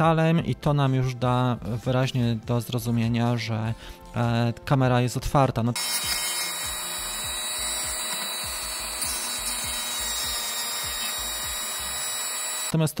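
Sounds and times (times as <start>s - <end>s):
rotary tool grinding plastic: 5.8s - 12.8s.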